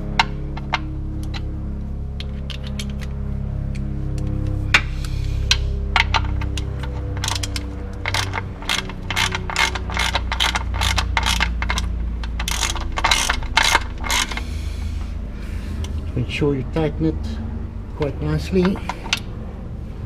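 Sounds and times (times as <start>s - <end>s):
ratchet wrench clicking: 6.0s - 14.5s.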